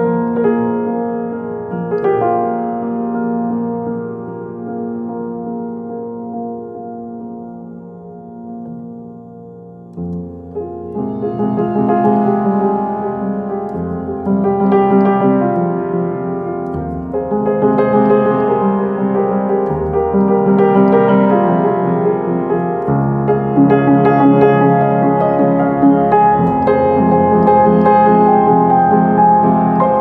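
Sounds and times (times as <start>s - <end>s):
slow piano chords: 0.0s - 30.0s.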